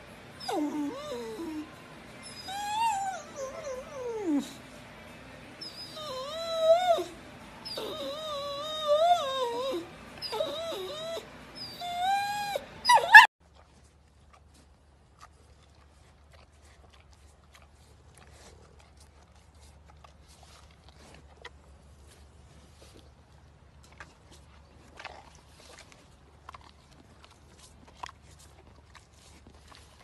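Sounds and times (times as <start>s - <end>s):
dog howling and whining: 0.4s - 4.8s, 5.6s - 13.3s.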